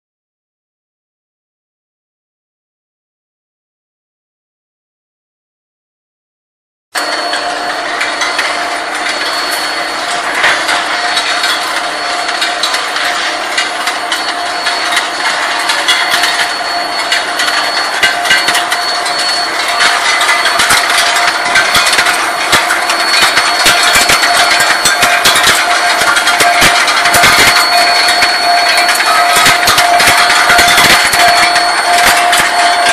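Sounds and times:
industrial hum with held tones: 0:07.0 - 0:32.9
metal clanks and knocks: 0:07.0 - 0:32.9.

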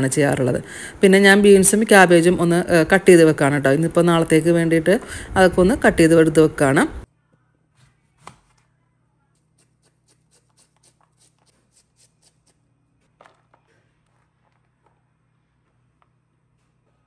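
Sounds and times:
knife chopping cabbage on board: 0:07.8 - 0:08.7, 0:09.4 - 0:12.6.

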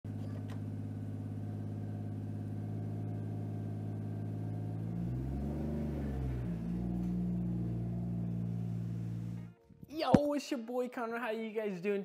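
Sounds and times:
car engine running from cabin: 0:00.1 - 0:09.6.

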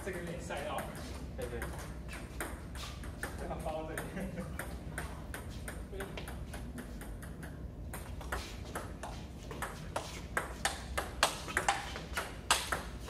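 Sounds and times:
table tennis ball clicks: 0:10.4 - 0:12.9.

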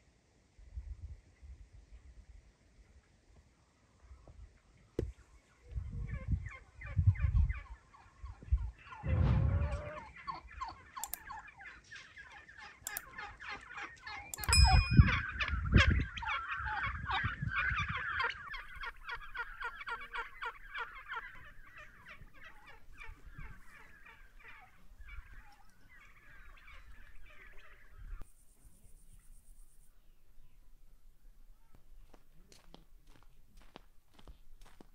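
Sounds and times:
chickens clucking and squawking: 0:05.8 - 0:14.2, 0:15.2 - 0:28.2.

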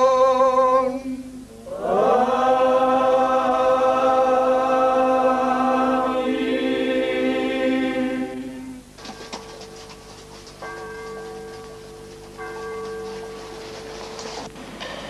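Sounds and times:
voices chanting a long note: 0:00.0 - 0:08.9.

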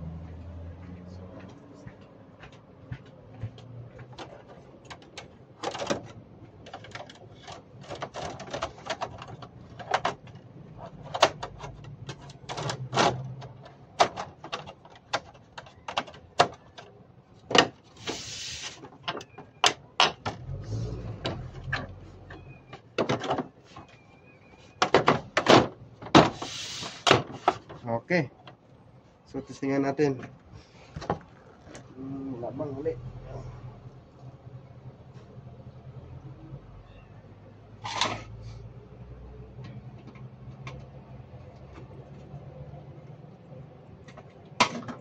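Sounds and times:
clicks and clattering of parts: 0:04.0 - 0:28.7, 0:43.9 - 0:45.0
short hiss: 0:18.0 - 0:18.8, 0:26.4 - 0:27.0.

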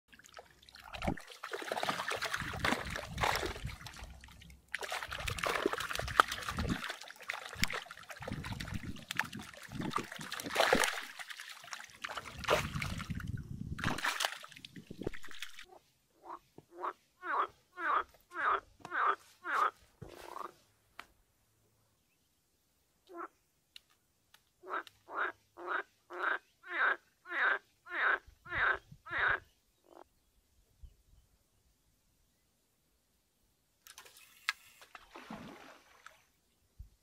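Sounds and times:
water trickling and sloshing: 0:00.1 - 0:15.7, 0:33.9 - 0:36.4
fish flapping and splashing: 0:01.0 - 0:04.2, 0:04.8 - 0:13.2, 0:13.8 - 0:15.7.

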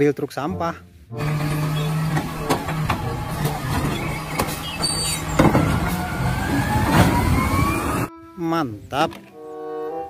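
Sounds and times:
garbage truck engine running: 0:01.2 - 0:08.1
hydraulic arm dumping trash cart: 0:01.2 - 0:08.1
hydraulic whine: 0:01.2 - 0:08.1
sharp knocks from cart: 0:01.5 - 0:07.3.

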